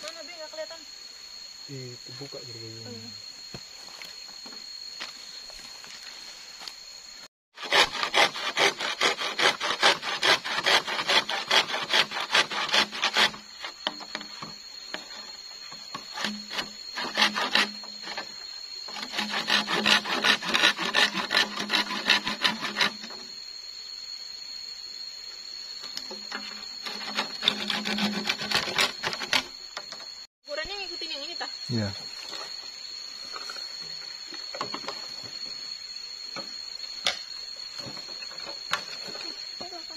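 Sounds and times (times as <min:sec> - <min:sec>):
hand saw cutting bamboo: 0:07.6 - 0:14.2, 0:15.9 - 0:23.2, 0:26.3 - 0:29.5.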